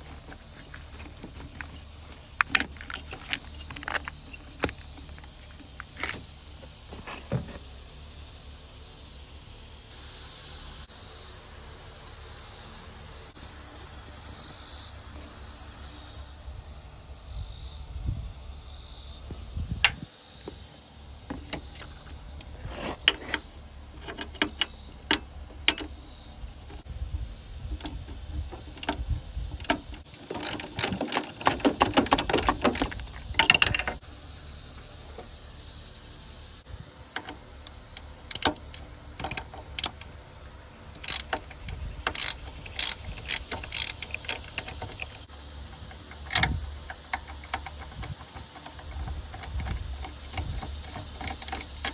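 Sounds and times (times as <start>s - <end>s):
ratchet wrench clicking: 21.5s - 34.5s, 37.2s - 40.1s, 40.9s - 51.9s
metal clicks and taps: 24.0s - 26.0s, 41.0s - 51.9s.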